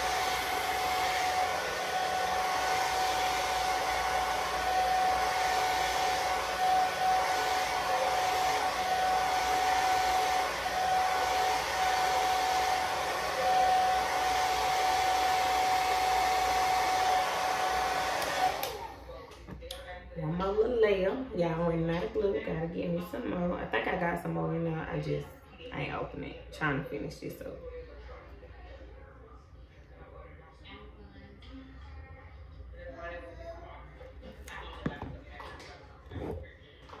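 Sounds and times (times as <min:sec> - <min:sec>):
hair dryer blowing: 0:00.0 - 0:19.2.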